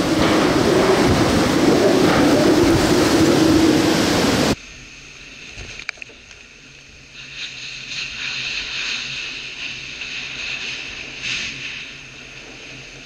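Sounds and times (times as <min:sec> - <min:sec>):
hurricane wind buffeting microphone: 0:00.0 - 0:04.6
muffled wind: 0:00.0 - 0:13.0
rain: 0:00.0 - 0:13.0.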